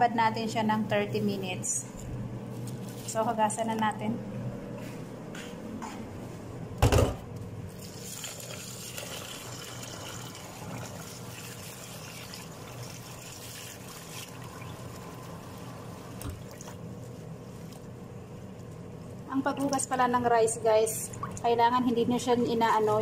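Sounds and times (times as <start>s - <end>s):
water trickling and splashing: 7.9s - 16.8s.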